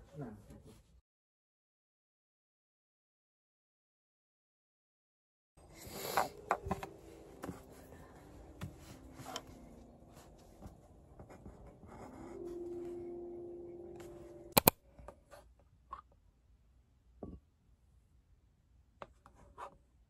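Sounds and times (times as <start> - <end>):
pen scratching on paper: 11.2 - 12.4
sharp clicks: 14.5 - 14.8.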